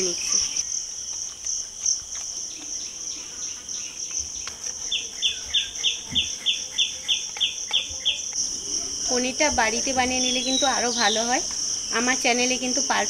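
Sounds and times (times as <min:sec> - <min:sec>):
bird chirping: 0:00.0 - 0:13.0
crickets droning: 0:00.0 - 0:13.0.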